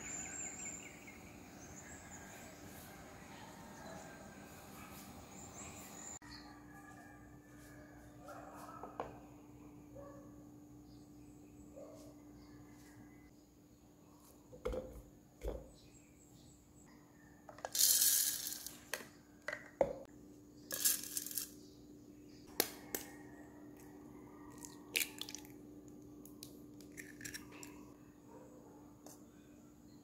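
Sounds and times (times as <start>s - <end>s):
oats pouring into plastic cup: 17.7s - 18.8s.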